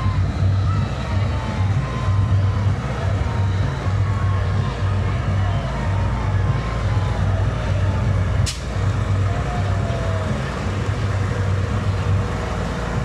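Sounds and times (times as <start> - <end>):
tractor diesel engine rumbling: 0.0 - 13.0
sharp snap: 8.4 - 8.8.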